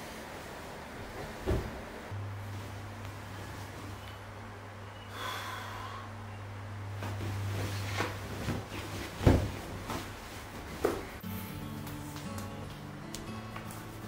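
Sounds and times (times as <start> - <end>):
bedcovers rustling: 0.0 - 4.2, 6.9 - 11.2
steady low hum: 0.0 - 13.4
dull thumps: 8.0 - 11.2.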